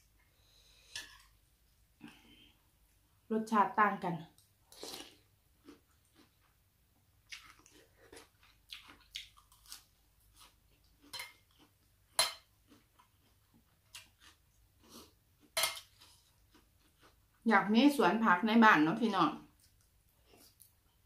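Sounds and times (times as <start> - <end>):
person chewing and crunching: 4.6 - 6.6, 7.2 - 17.4, 19.5 - 21.0.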